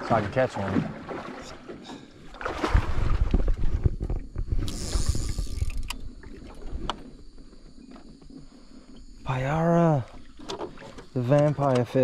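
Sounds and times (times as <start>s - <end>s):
water splash: 0.0s - 3.8s.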